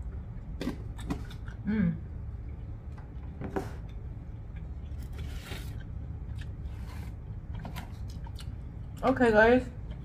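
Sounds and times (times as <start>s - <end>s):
low steady hum: 0.0s - 10.0s
soft chewing and mouth clicks: 3.8s - 9.0s.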